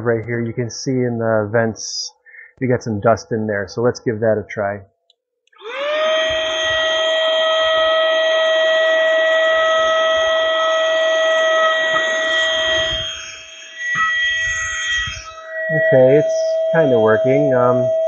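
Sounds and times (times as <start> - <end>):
handheld vacuum motor whining: 5.6 - 18.0.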